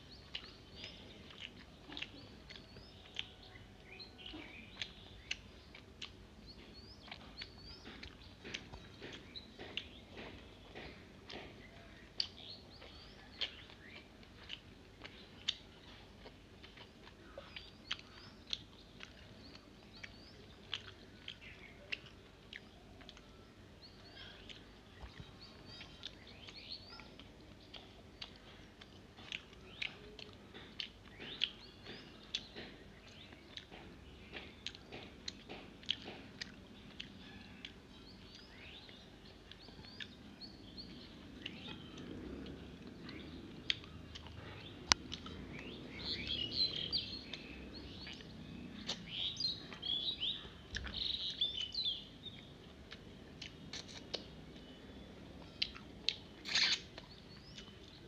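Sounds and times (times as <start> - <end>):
person chewing food: 0.0 - 58.0
wet mouth clicks and smacks: 52.9 - 54.3, 55.6 - 57.1.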